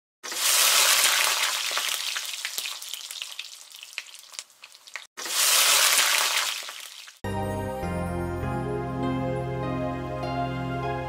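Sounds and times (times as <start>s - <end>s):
food sizzling in hot oil: 0.2s - 7.2s.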